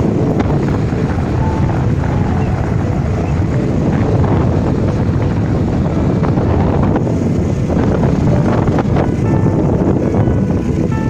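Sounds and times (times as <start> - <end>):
engine and road noise rumble: 0.0 - 11.0
wind buffeting microphone: 0.0 - 11.0.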